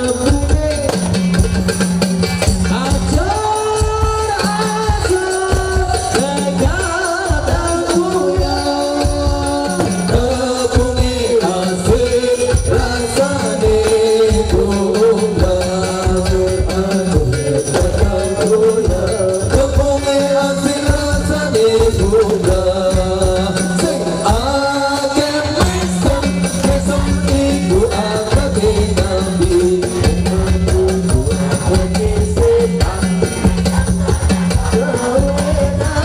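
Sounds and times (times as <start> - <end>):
person singing into microphone: 0.0 - 1.4, 2.4 - 36.0
hand drum beat: 0.0 - 36.0
jingle percussion: 0.0 - 36.0.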